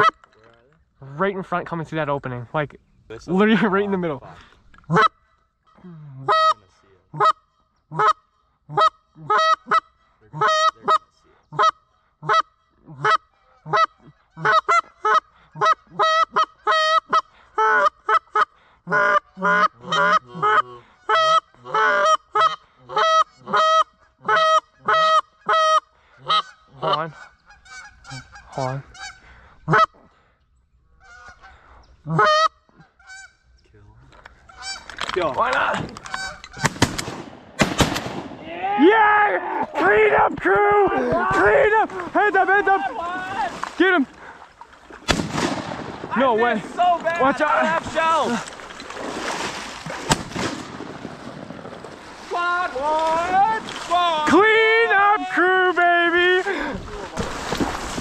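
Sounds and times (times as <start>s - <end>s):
geese honking: 4.9s - 30.1s, 30.9s - 33.6s, 34.4s - 35.2s, 36.0s - 36.8s.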